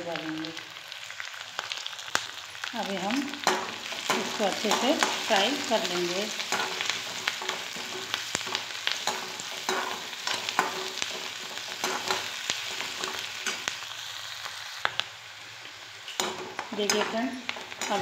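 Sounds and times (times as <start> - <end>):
vegetables sizzling in hot oil: 0.0 - 18.0
metal spatula scraping pan: 3.4 - 13.7.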